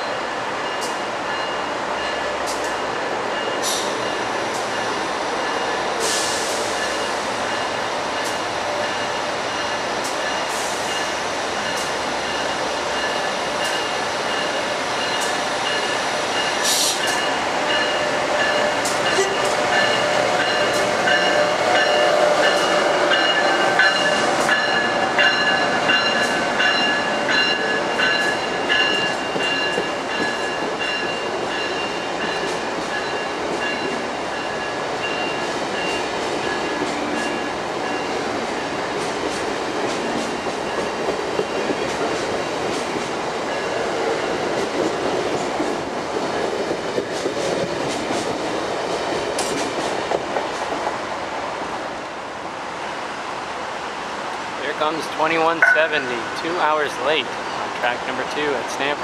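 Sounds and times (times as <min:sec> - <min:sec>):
train rolling rumble: 0:00.0 - 0:59.0
high steady tones: 0:55.1 - 0:57.3.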